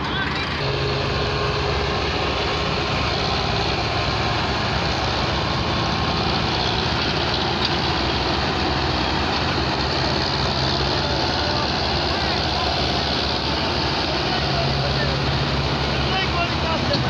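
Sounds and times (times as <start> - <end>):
tractor diesel engines running: 0.0 - 17.0.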